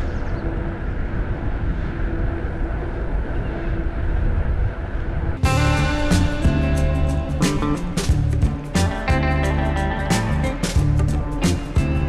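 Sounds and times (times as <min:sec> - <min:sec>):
wind rushing over microphone: 0:00.0 - 0:09.4.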